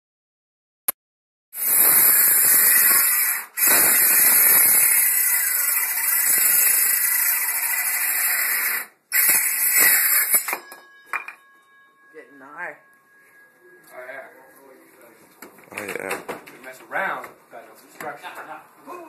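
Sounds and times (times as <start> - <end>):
circular saw cutting wood: 1.6 - 10.6.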